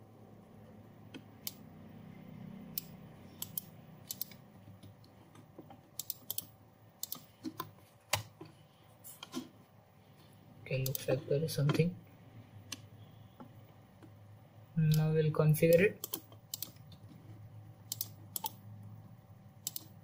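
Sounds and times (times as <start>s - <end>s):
mouse clicks: 2.7s - 5.0s, 19.6s - 19.9s
computer keyboard clicks: 2.8s - 5.0s, 6.0s - 8.3s, 15.7s - 17.0s, 17.9s - 18.6s, 19.6s - 20.0s.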